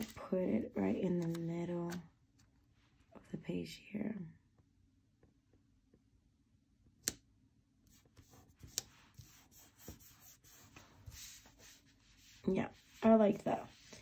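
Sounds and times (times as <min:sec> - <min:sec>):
paper rubbing and rustling: 0:08.2 - 0:14.0.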